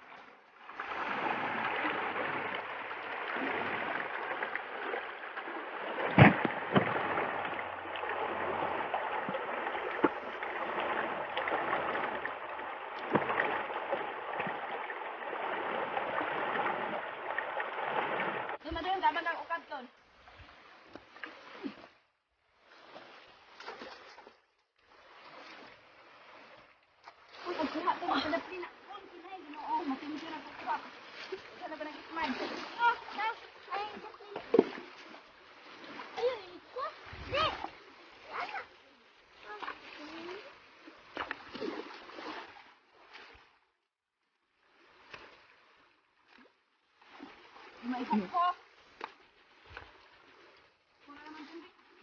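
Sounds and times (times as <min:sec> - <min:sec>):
rocky stream running: 0:00.0 - 0:22.1, 0:23.2 - 0:43.4, 0:47.0 - 0:52.0
splashes and stone knocks: 0:00.7 - 0:19.2, 0:22.9 - 0:24.4, 0:29.3 - 0:38.7, 0:39.4 - 0:43.5.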